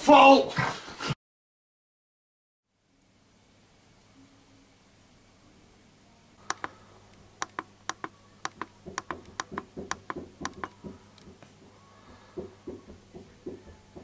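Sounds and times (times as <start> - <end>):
clock ticking: 6.5 - 6.7, 7.4 - 10.8.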